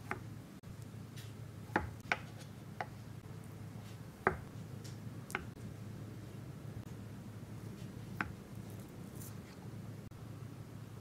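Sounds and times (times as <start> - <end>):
knife tapping on cutting board: 4.3 - 4.5.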